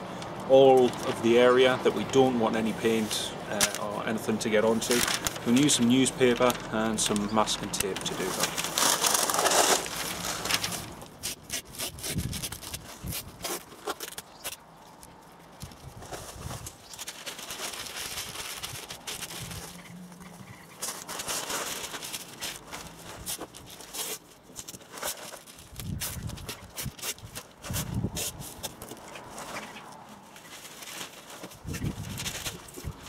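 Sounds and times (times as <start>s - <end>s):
newspaper rustling and crinkling: 0.5s - 33.0s
masking tape pulled off roll: 8.6s - 14.6s, 21.9s - 28.8s.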